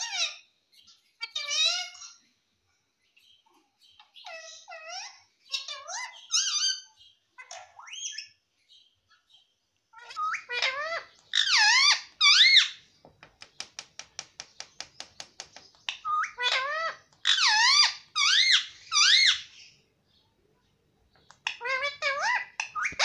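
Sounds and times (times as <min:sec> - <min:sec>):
parakeet screeching: 0:00.0 - 0:00.5, 0:01.2 - 0:02.2, 0:04.2 - 0:08.4, 0:10.0 - 0:12.8, 0:15.9 - 0:19.8, 0:21.4 - 0:23.0.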